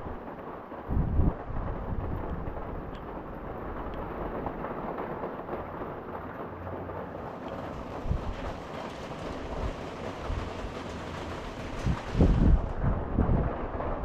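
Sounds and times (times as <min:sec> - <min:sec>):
rain hissing: 0:00.0 - 0:14.0
wind rumble on microphone: 0:00.0 - 0:14.0.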